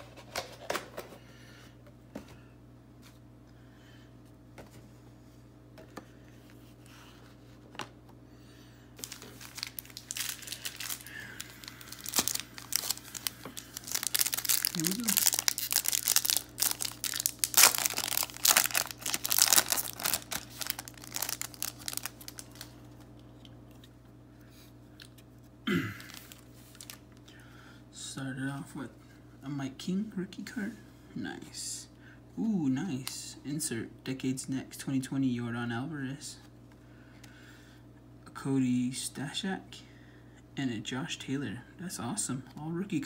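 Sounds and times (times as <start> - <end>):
foil wrapper tearing and crinkling: 9.0 - 22.8, 26.0 - 27.0.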